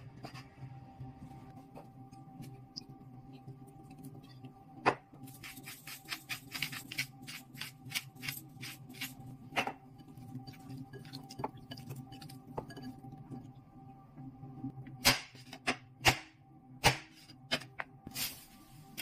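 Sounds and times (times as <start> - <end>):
pepper mill grinding: 5.3 - 9.2.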